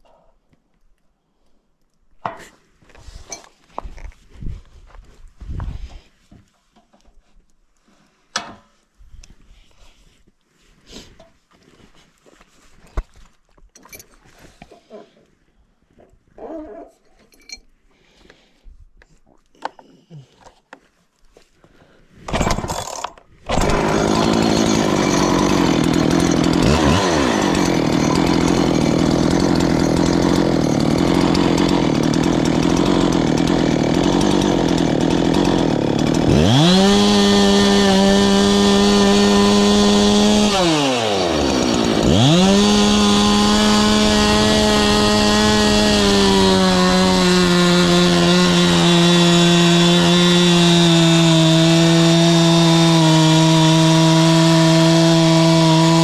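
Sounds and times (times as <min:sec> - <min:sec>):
chainsaw starting and revving: 0:22.3 - 0:56.0.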